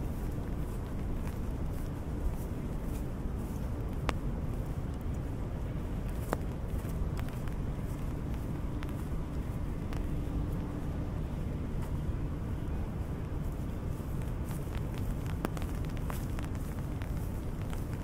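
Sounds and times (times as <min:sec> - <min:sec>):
low rumble: 0:00.0 - 0:18.0
steady rain: 0:03.1 - 0:12.4, 0:13.2 - 0:18.0
raindrops tapping on umbrella: 0:06.0 - 0:10.6, 0:14.0 - 0:18.0.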